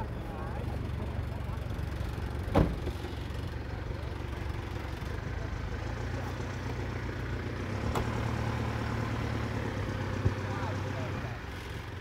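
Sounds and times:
pickup truck engine idling: 0:00.0 - 0:12.0.

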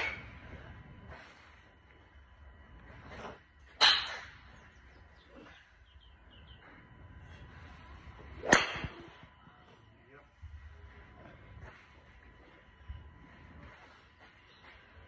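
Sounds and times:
golf club striking ball: 0:08.4 - 0:09.0.

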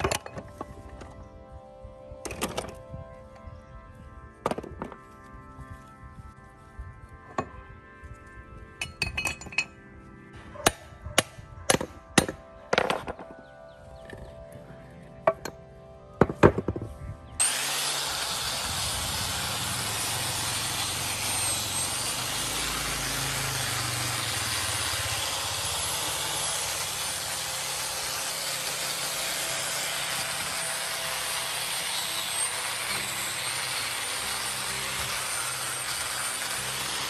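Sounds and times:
angle grinder grinding metal: 0:17.4 - 0:37.0.

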